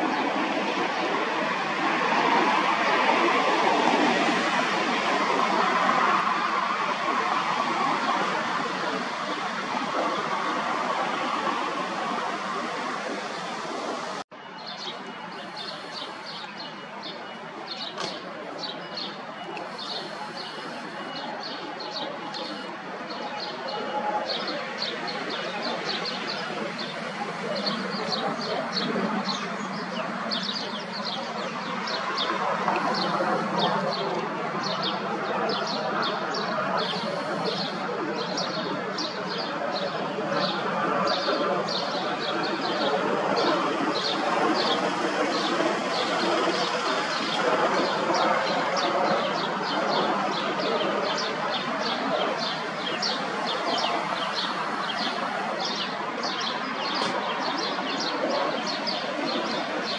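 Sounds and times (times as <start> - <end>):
steady background rush: 0.0 - 59.9
small birds chirping: 14.4 - 59.9.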